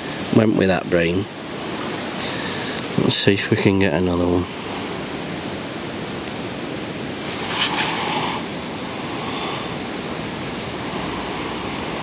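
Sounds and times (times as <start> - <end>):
wind on microphone: 4.4 - 12.0
short rustle: 7.2 - 8.4.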